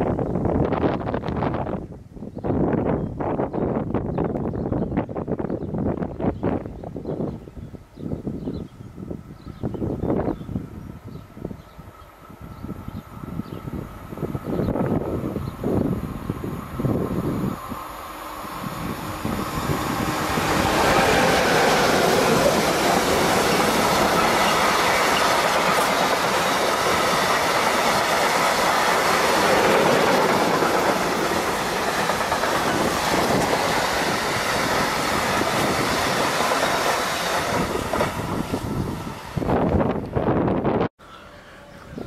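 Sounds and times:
freight train rumbling: 0:00.0 - 0:42.0
wheels clacking on rails: 0:19.2 - 0:38.6.

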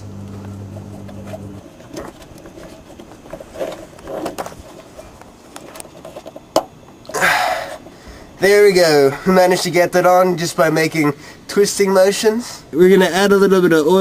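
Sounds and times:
low hum: 0:00.0 - 0:01.7
rubber rubbing and scuffing: 0:00.4 - 0:06.1.

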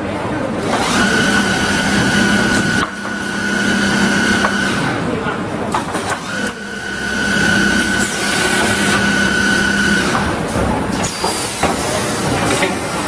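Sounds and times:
machine motor whine: 0:00.7 - 0:05.1, 0:06.1 - 0:11.6.

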